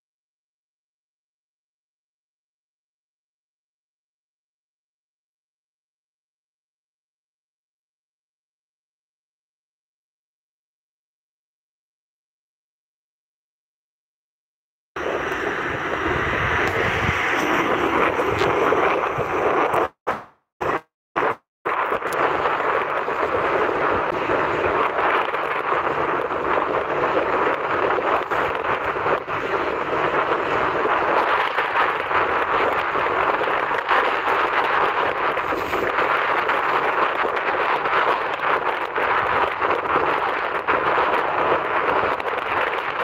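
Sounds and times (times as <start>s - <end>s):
sea surf: 15.0s - 20.0s, 20.6s - 43.0s
wind buffeting microphone: 15.0s - 20.0s, 20.6s - 43.0s
rushing wind: 15.0s - 43.0s.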